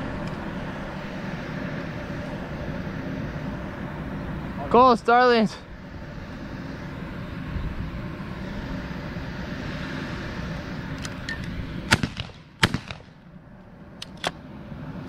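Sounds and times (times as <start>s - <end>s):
shotgun shots: 11.9s - 13.2s.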